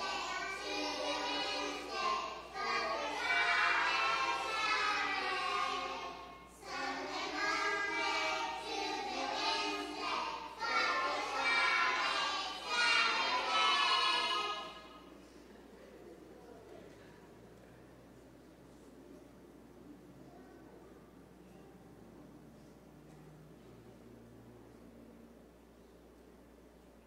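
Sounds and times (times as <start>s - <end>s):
children singing: 0.0s - 15.1s.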